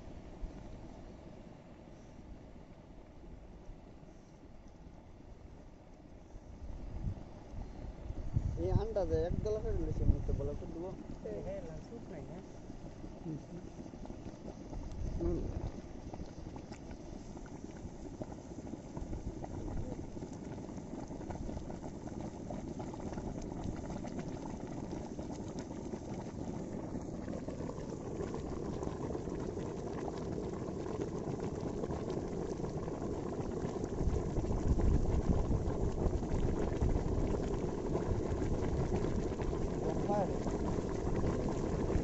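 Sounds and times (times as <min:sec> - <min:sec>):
bubbling and fizzing in water: 0:09.4 - 0:42.0.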